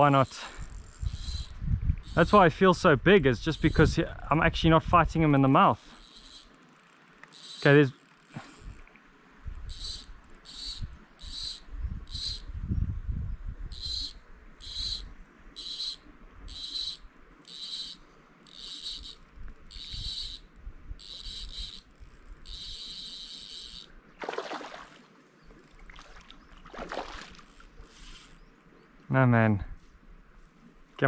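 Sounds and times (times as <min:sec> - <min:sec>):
insect chirping: 0:00.0 - 0:02.4, 0:03.3 - 0:04.3, 0:05.0 - 0:08.9, 0:09.5 - 0:29.0
fish splashing at surface: 0:24.2 - 0:25.0, 0:25.8 - 0:27.5.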